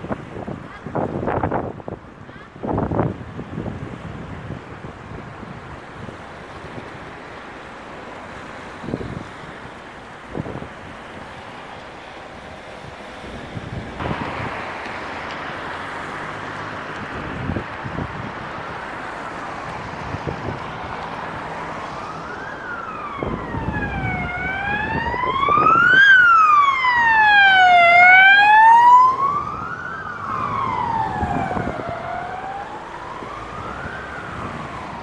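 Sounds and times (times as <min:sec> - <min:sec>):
car road noise: 0:00.0 - 0:35.0
emergency siren wailing: 0:14.0 - 0:35.0.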